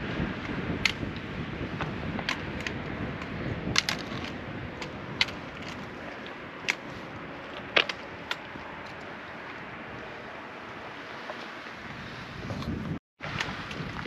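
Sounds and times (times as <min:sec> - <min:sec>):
footsteps on rocky trail: 0:00.8 - 0:14.0.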